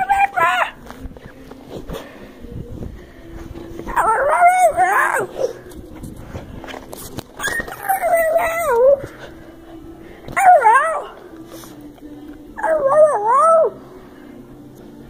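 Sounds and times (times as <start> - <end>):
dog howling: 0.0 - 0.8, 3.9 - 5.6, 7.4 - 9.4, 10.3 - 11.4, 12.6 - 13.8.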